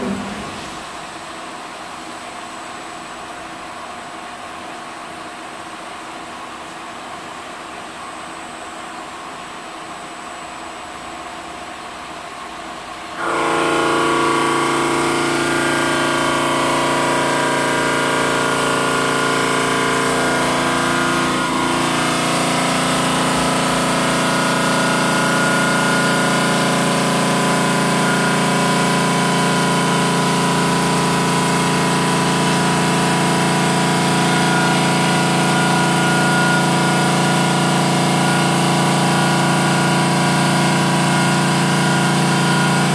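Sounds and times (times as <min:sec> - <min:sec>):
machine hum: 0:00.0 - 0:01.3, 0:13.2 - 0:42.9
saw blade whining through stone: 0:13.2 - 0:42.9.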